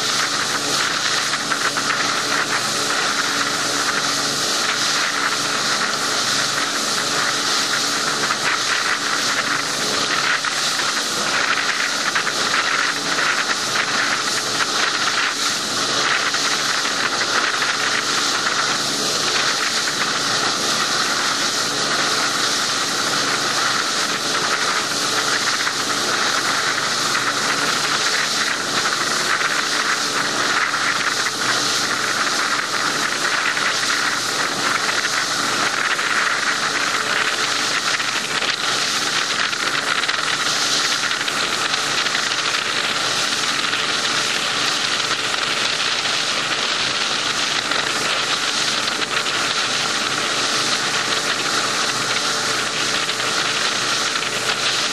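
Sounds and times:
faint engine drone: 0.0 - 54.9
wind and water rushing: 0.0 - 54.9.

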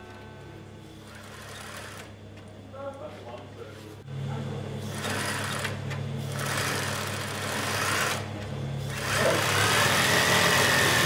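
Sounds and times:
sewing machine running: 1.1 - 2.1, 4.9 - 8.3, 8.9 - 11.0.

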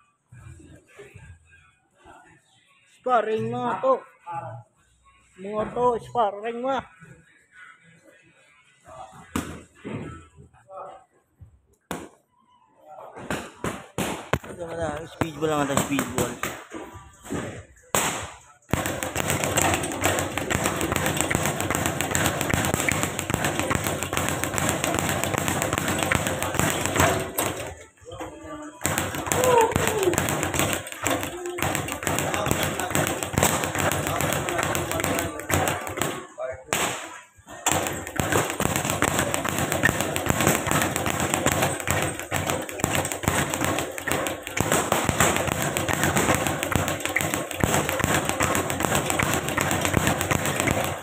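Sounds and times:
speed bag being punched: 15.2 - 16.6, 18.0 - 27.8, 28.7 - 51.0.

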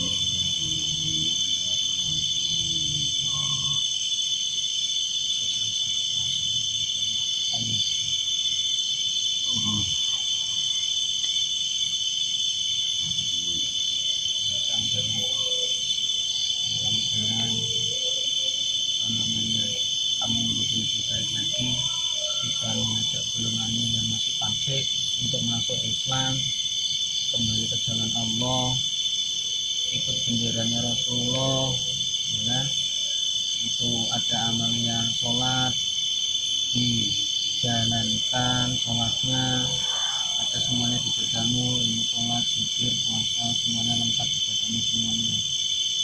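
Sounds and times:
low voices murmuring: 0.0 - 3.8, 6.2 - 7.9, 9.5 - 10.2, 14.5 - 15.8, 16.6 - 18.4, 19.0 - 26.5, 36.7 - 45.4
crickets trilling: 0.0 - 46.0.

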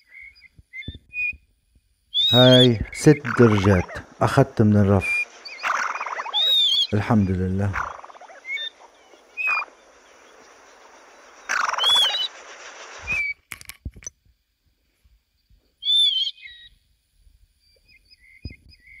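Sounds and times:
steady hiss: 1.4 - 19.0
plover whistling calls: 2.1 - 13.4, 15.8 - 16.7.

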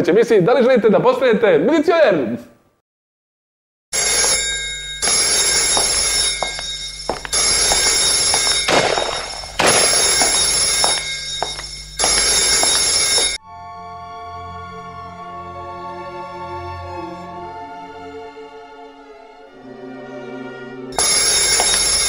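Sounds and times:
bell-like ringing: 4.0 - 13.4, 21.0 - 22.0.

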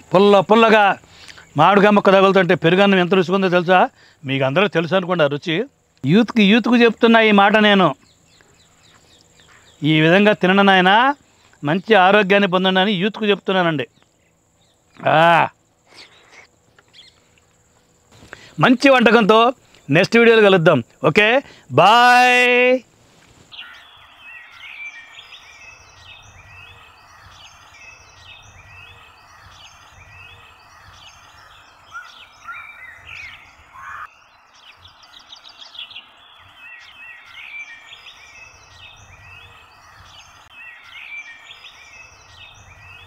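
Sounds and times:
faint steady hiss: 0.0 - 43.0
small birds chirping: 0.0 - 43.0
short rising bird call: 23.5 - 25.8, 28.8 - 38.2.

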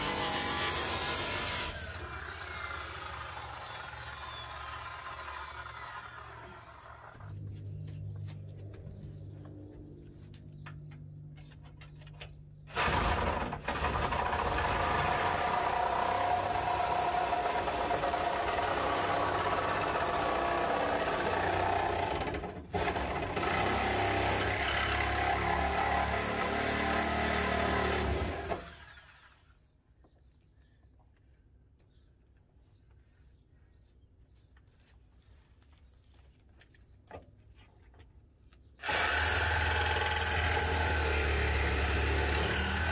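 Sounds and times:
reciprocating saw cutting metal: 0.0 - 7.2, 38.8 - 42.9.

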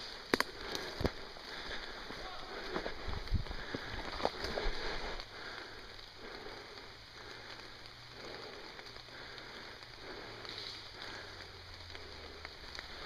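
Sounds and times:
rain pattering on foliage: 0.0 - 13.0
sharp snaps: 0.2 - 1.2.

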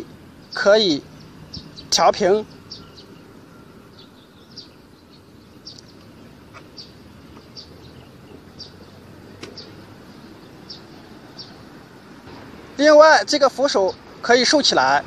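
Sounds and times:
small bird chirping: 0.0 - 12.1.

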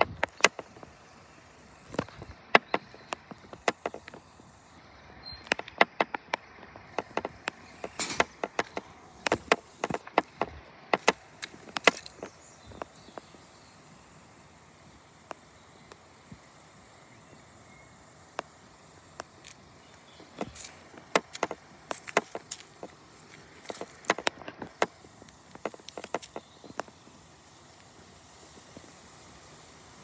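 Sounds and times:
sharp clicks and knocks: 0.0 - 0.9, 1.8 - 4.4, 5.4 - 13.4, 20.2 - 27.1.

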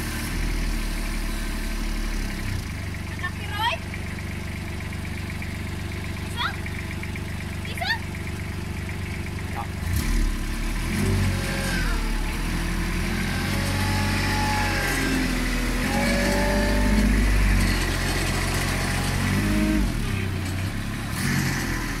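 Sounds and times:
loader engine running: 0.0 - 22.0.

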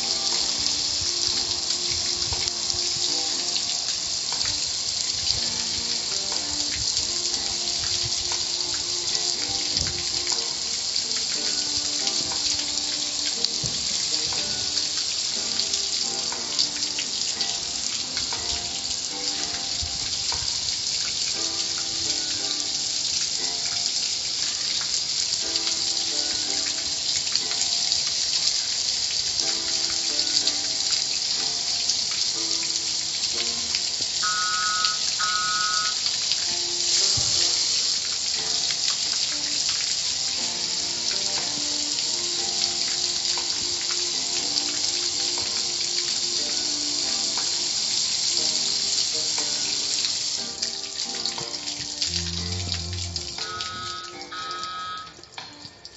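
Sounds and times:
faint music: 0.0 - 55.9
water jets spraying: 0.0 - 55.9.

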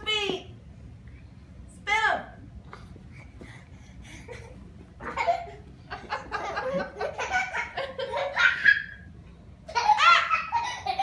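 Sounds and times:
people laughing: 4.3 - 8.7.

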